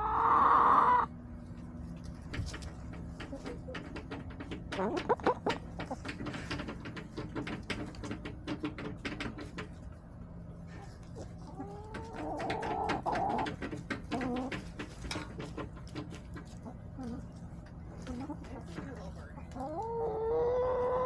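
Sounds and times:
hens calling: 0:00.0 - 0:01.1, 0:10.8 - 0:14.7, 0:18.0 - 0:21.0.

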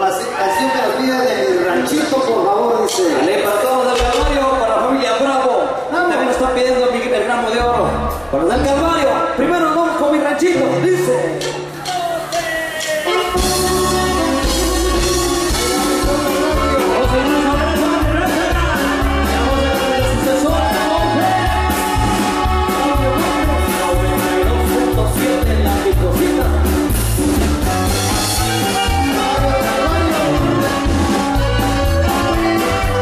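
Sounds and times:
live band playing: 0:00.0 - 0:33.0
person singing: 0:10.6 - 0:33.0
strong bass beat: 0:11.4 - 0:33.0.

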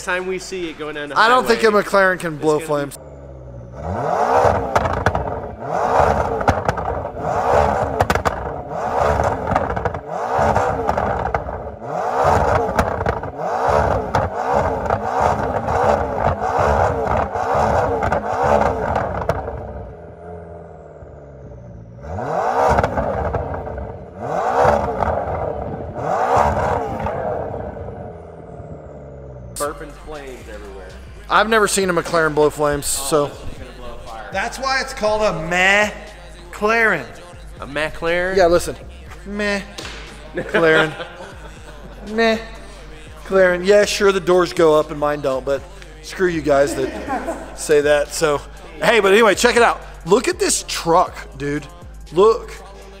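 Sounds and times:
car engine revving: 0:00.0 - 0:53.0
exhaust crackling pops: 0:03.5 - 0:20.4, 0:22.5 - 0:29.6.

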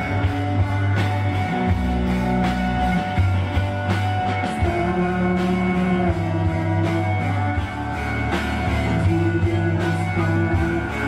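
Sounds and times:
drums: 0:00.0 - 0:11.0
electric bass: 0:00.0 - 0:11.0
electric guitar: 0:00.0 - 0:11.0.

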